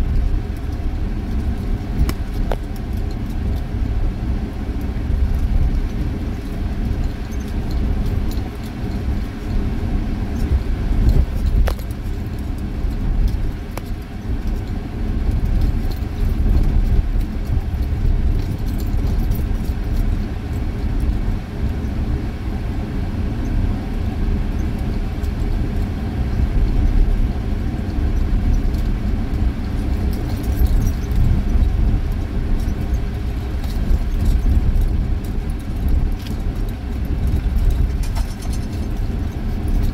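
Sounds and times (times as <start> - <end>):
loose things rattling in cab: 0.0 - 22.2, 22.9 - 39.9
vehicle engine and tyres rumbling: 0.0 - 39.9.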